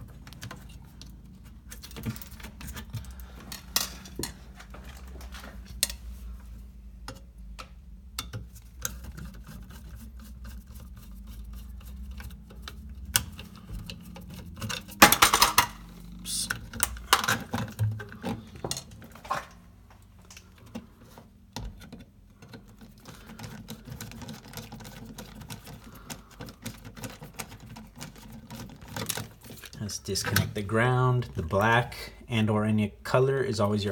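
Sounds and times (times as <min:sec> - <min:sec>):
metal clicks and rattles: 0:00.0 - 0:05.0, 0:10.8 - 0:30.6
clattering: 0:12.4 - 0:19.6.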